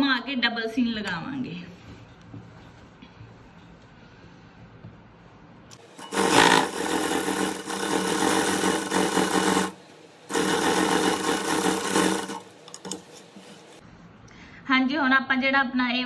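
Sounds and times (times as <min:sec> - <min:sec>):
sewing machine stitching: 0:05.8 - 0:13.0.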